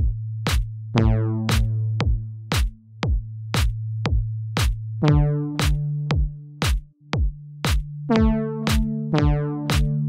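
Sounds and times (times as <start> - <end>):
drum machine beat: 0.0 - 10.0
plucked synth chords: 0.9 - 3.2, 5.0 - 10.0
held bass synth note: 1.0 - 1.6, 5.0 - 6.1.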